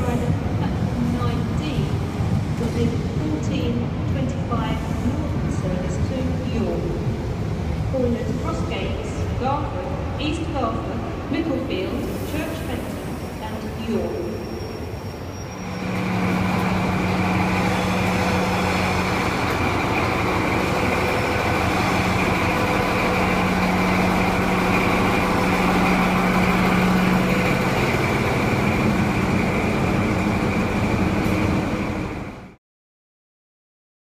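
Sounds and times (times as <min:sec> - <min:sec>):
diesel engine running: 0:15.6 - 0:32.6.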